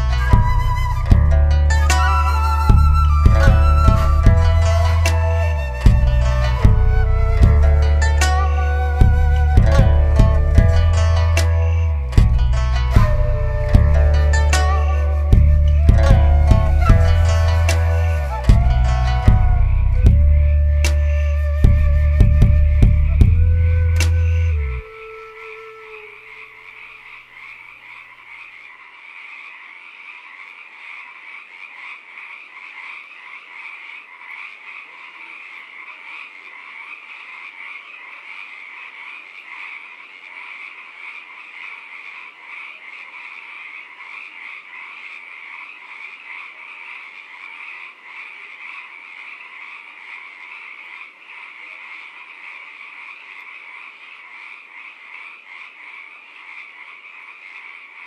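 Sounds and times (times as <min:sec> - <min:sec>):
low music notes: 0:00.0 - 0:24.8
frogs chorus trilling: 0:00.0 - 0:58.0.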